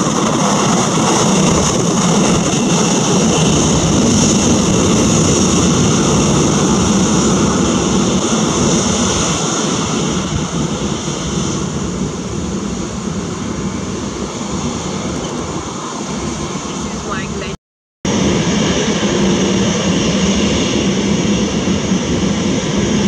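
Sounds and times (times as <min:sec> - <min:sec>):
jet engines whining: 0:00.0 - 0:23.0.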